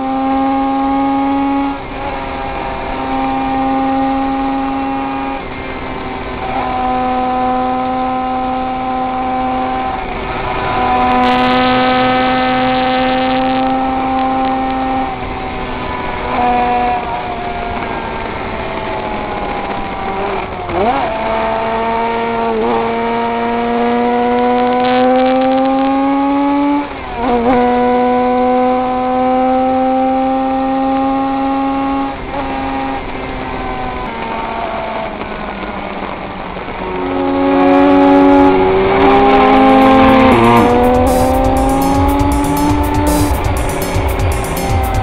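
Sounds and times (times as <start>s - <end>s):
racing motorcycle engine at full throttle: 0.0s - 45.0s.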